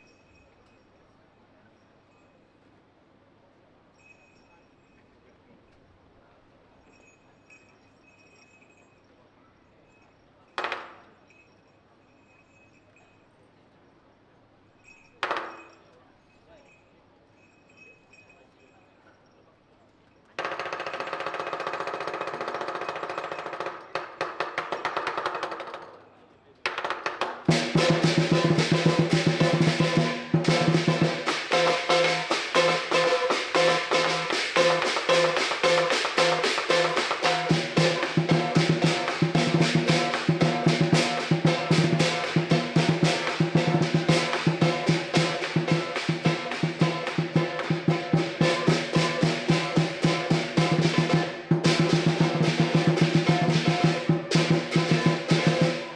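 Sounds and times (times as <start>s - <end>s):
drum cymbals and gong roll: 27.5s - 55.9s.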